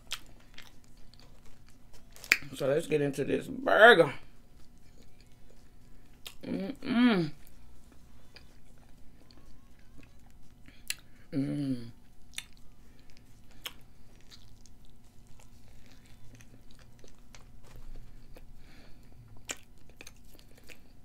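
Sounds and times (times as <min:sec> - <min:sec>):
person chewing burger: 0:00.0 - 0:02.5, 0:04.3 - 0:11.3, 0:12.0 - 0:21.0.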